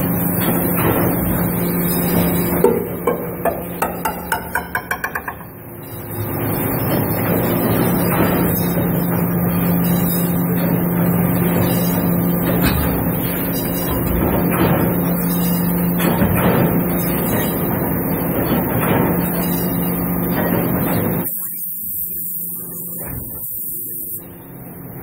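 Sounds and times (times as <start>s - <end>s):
hydraulic press humming: 0.0s - 21.2s
metal piece bouncing knocks: 2.6s - 5.6s.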